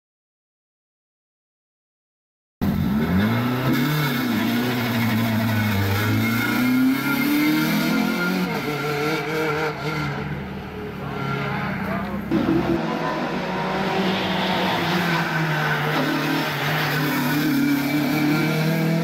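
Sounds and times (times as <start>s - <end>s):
race car engine accelerating: 2.6s - 10.3s, 11.8s - 19.0s.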